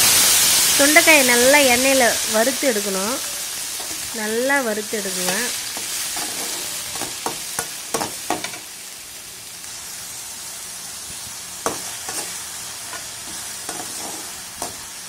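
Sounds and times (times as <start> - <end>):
berries sizzling in hot oil: 0.0 - 15.0
metal ladle scraping pan: 3.2 - 4.2, 5.1 - 8.6, 11.7 - 14.9.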